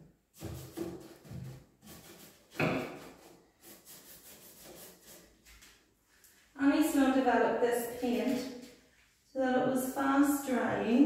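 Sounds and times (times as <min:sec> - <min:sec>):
paintbrush strokes on wood: 0:00.4 - 0:06.6.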